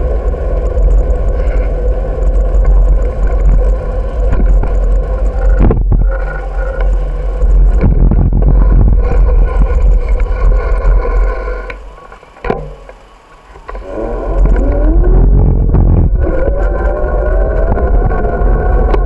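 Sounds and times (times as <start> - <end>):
wind buffeting microphone: 0.0 - 11.7, 13.7 - 19.0
bicycle rattling over pavement: 0.0 - 19.0
vehicle engine accelerating: 13.7 - 19.0.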